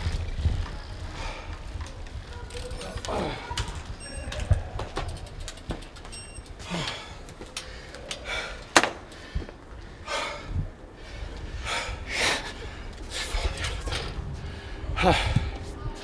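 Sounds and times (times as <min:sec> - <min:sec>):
heavy gasping breaths: 0:06.6 - 0:15.6.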